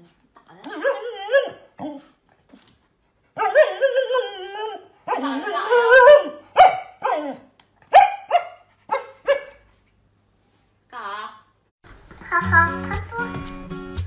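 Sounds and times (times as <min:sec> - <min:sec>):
dog barking: 0:05.0 - 0:09.6.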